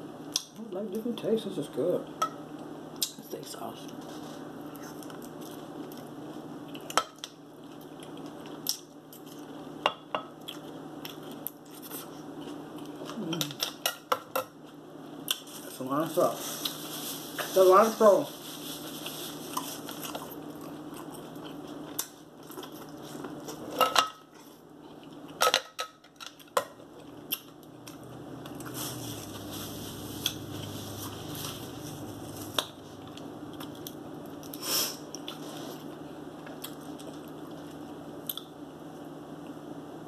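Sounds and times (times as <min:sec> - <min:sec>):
steady low hum: 0:00.0 - 0:40.0
person chewing: 0:07.6 - 0:09.7, 0:10.4 - 0:13.8, 0:19.0 - 0:25.4, 0:26.2 - 0:38.5.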